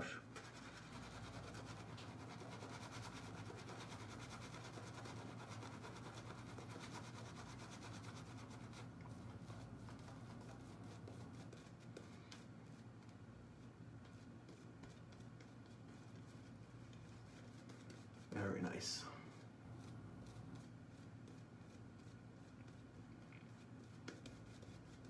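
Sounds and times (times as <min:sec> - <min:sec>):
shaving brush scrubbing lather: 0:00.4 - 0:08.8
person speaking: 0:18.3 - 0:19.5.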